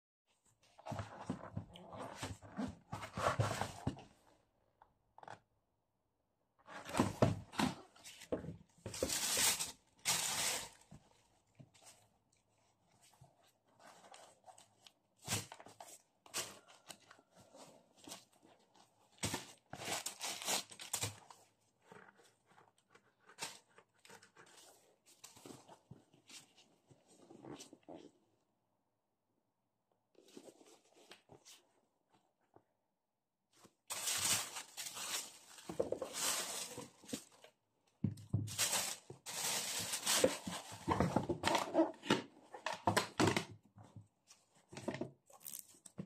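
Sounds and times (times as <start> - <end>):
tissue paper rustling: 8.9 - 10.9, 33.9 - 37.5, 38.4 - 41.1.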